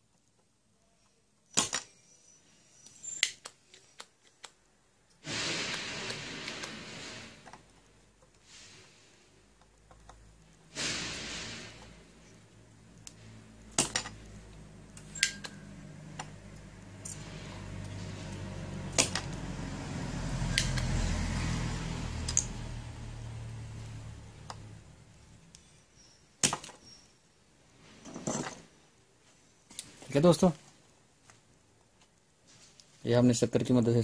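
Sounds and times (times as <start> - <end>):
desoldering pump snapping: 17.8 - 19.4.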